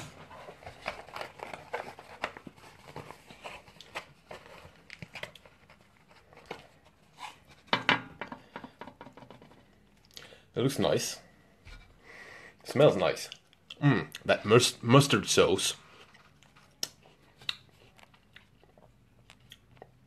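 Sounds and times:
cardboard box crackling: 0.0 - 7.5.

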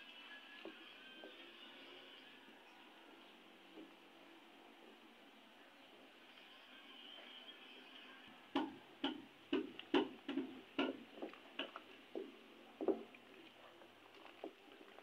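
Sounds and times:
wooden spatula tapping metal pot: 8.6 - 12.3.

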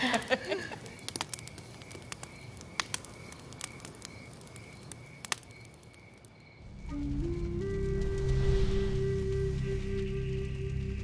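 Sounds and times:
logs popping: 0.0 - 6.4
wood fire crackling: 0.0 - 11.0
low sustained music tones: 6.6 - 11.0.

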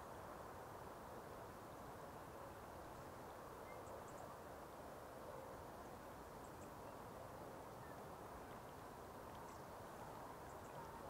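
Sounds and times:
faint outdoor hiss: 0.0 - 11.0.

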